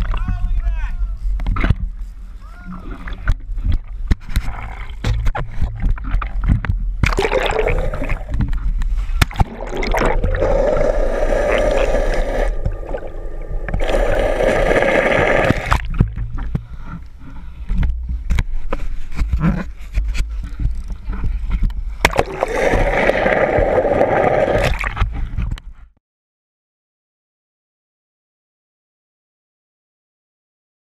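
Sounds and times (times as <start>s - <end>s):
water splashing over camera: 2.8s - 16.6s, 21.9s - 25.5s
muffled underwater rushing: 2.8s - 17.6s, 21.3s - 25.5s.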